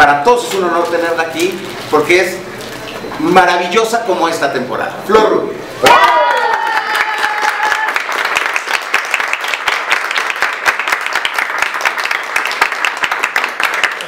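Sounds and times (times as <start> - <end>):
crowd applauding: 5.8 - 14.0.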